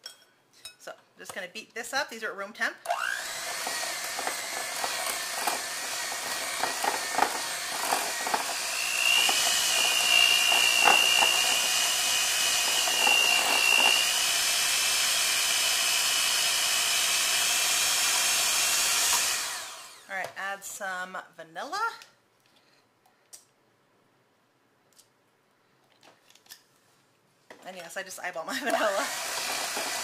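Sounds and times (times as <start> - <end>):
electric hand mixer beating: 2.9 - 20.1, 28.7 - 30.0.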